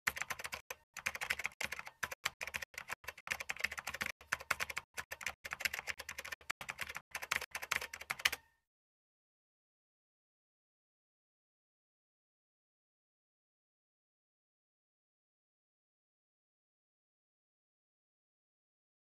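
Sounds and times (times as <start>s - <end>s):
keyboard typing: 0.0s - 8.6s.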